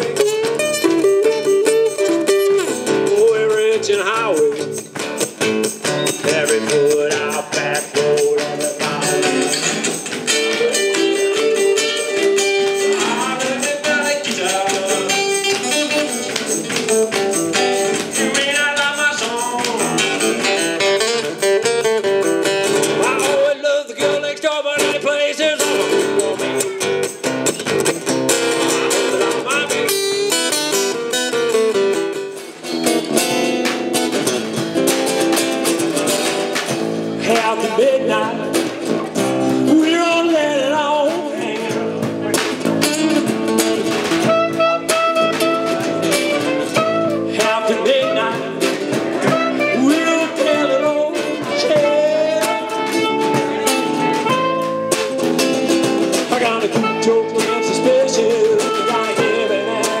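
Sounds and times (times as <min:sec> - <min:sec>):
acoustic bass guitar: 0:00.0 - 1:00.0
strummed acoustic guitars: 0:00.0 - 1:00.0
clarinet: 0:44.1 - 0:48.5, 0:49.2 - 0:55.5, 0:56.7 - 1:00.0.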